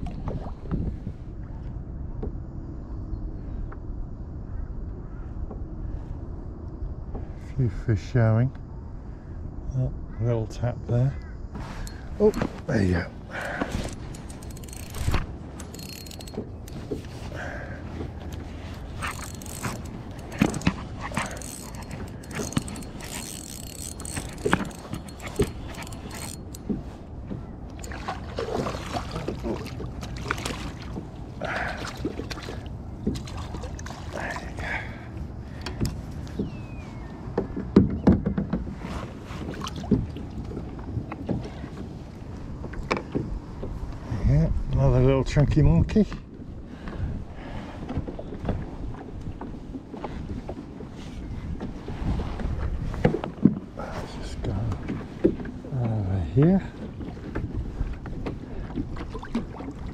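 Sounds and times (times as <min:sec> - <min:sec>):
fishing reel clicking and rattling: 0:13.4 - 0:16.9, 0:18.9 - 0:26.7.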